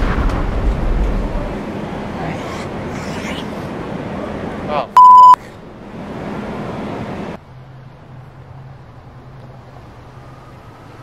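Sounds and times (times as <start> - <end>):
city street noise: 0.0 - 11.0
short electronic beep: 5.0 - 5.4.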